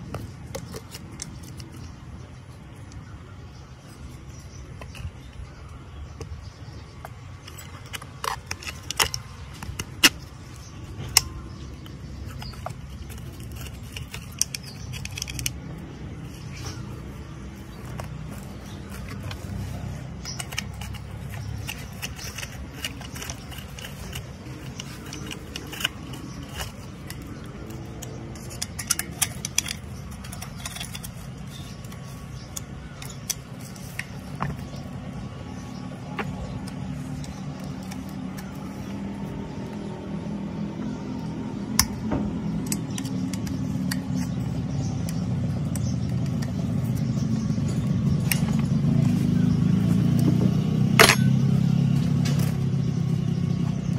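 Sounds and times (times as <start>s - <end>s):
metal parts clicking and clinking: 7.1s - 38.7s, 51.0s - 51.6s.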